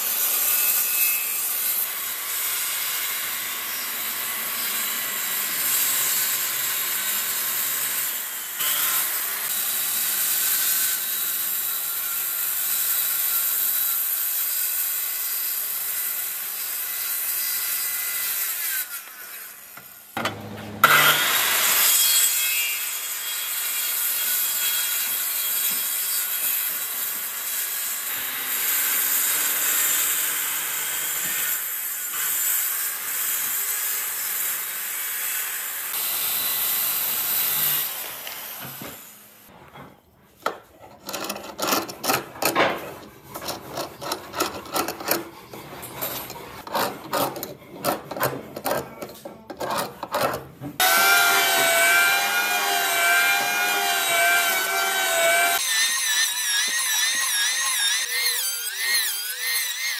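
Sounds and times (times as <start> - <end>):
circular saw cutting wood: 0.0 - 39.6, 40.8 - 59.9
hand tool scraping wood: 38.6 - 50.9.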